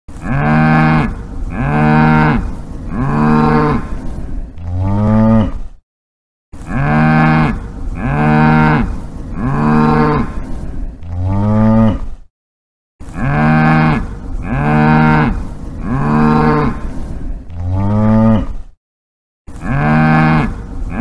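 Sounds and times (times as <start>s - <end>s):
cow mooing: 0.2s - 3.9s, 4.7s - 5.6s, 6.7s - 10.3s, 11.1s - 12.0s, 13.1s - 16.8s, 17.6s - 18.5s, 19.6s - 21.0s.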